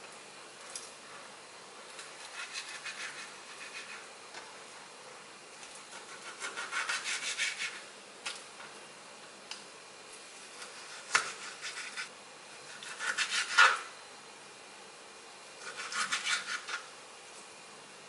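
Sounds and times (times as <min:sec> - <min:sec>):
knife sawing through meat: 0:02.2 - 0:04.0, 0:05.9 - 0:07.8, 0:10.6 - 0:12.1, 0:12.7 - 0:13.9, 0:15.6 - 0:16.8.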